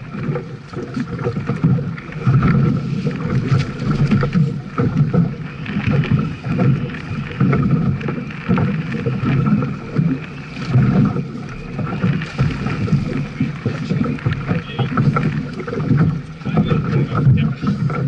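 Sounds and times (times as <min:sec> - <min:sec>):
waves slapping against hull: 0:00.0 - 0:18.0
wind buffeting microphone: 0:00.0 - 0:18.0.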